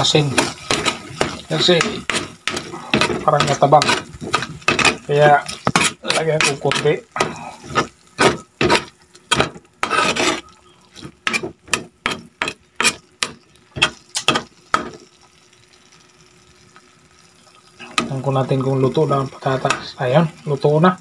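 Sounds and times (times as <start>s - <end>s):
spatula scraping frying pan: 0.0s - 15.0s
faint sizzle: 0.0s - 21.0s.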